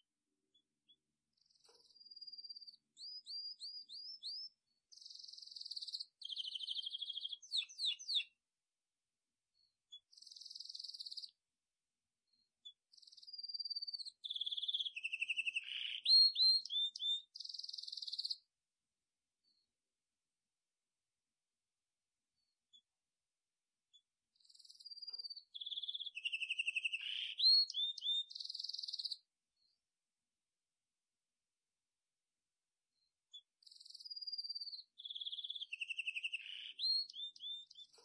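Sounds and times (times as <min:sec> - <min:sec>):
songbird singing: 0:00.6 - 0:08.4, 0:09.9 - 0:11.4, 0:12.3 - 0:18.5, 0:24.0 - 0:29.3, 0:33.4 - 0:38.0.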